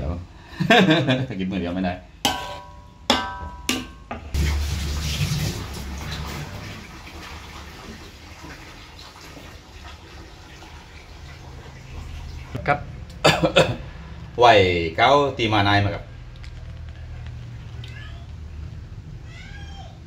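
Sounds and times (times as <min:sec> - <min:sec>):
metal ladle knocking on pot: 0:02.3 - 0:04.4.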